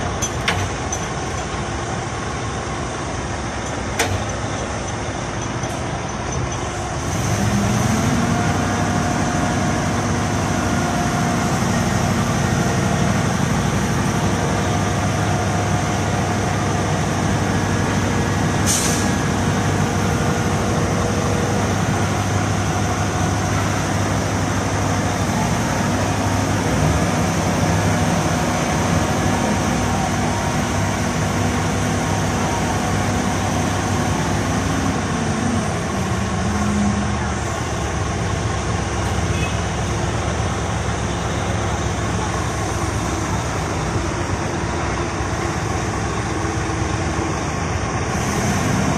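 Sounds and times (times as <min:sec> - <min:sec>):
heavy diesel engine revving: 0:06.8 - 0:48.9
sharp hiss of air: 0:18.6 - 0:19.2.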